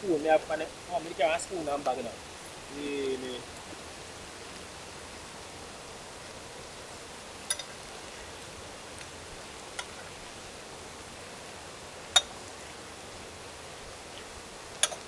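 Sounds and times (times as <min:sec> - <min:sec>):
faint steady hiss: 0:00.0 - 0:15.0
metal spoon clinking on skillet: 0:07.4 - 0:07.7.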